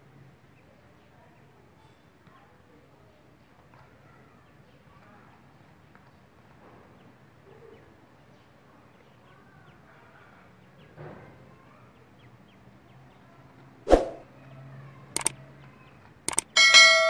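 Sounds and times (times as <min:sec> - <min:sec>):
quick clicks: 0:15.2 - 0:15.4, 0:16.3 - 0:16.5.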